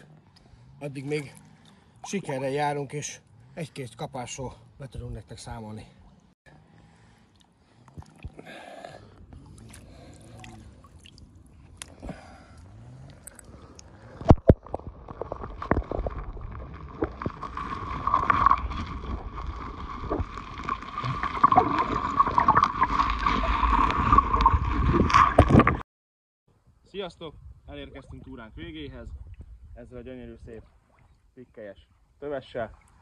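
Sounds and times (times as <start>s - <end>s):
water sloshing: 6.0s - 25.7s
underwater gurgling and rumble: 9.0s - 25.8s.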